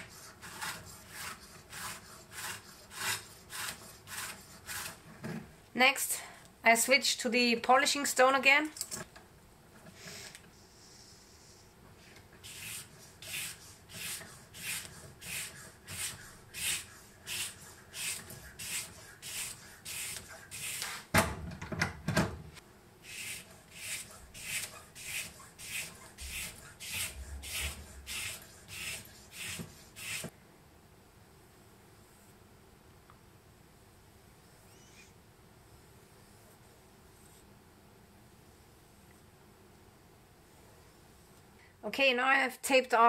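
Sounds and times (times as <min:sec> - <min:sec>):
stone sharpening knife strokes: 0:12.5 - 0:21.0, 0:23.1 - 0:30.3.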